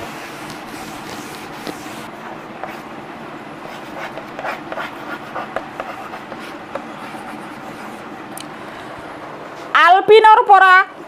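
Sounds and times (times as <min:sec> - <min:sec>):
chalk writing on blackboard: 0:00.0 - 0:02.8, 0:03.7 - 0:08.0.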